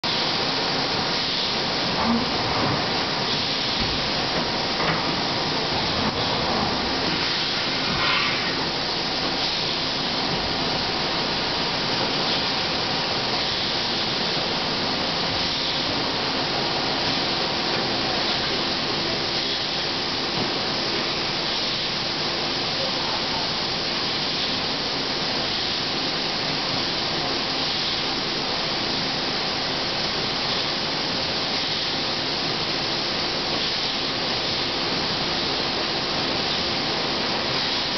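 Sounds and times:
compressed air hiss: 7.0 - 10.3.

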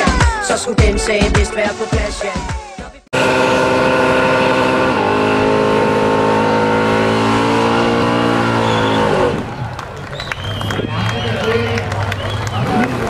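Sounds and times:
engine at high revs: 3.2 - 10.9, 11.8 - 13.0.

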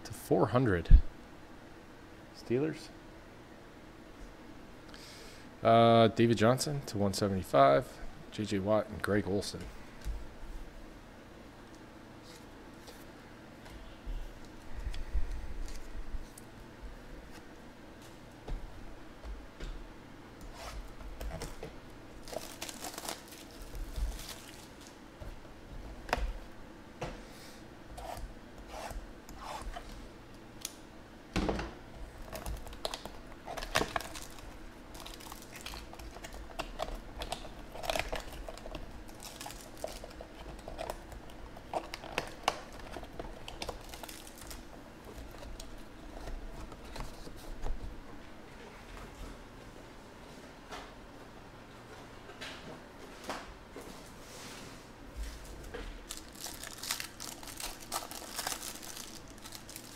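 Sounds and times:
packaging tearing and crinkling: 22.2 - 25.0, 32.2 - 45.8, 56.0 - 59.9.

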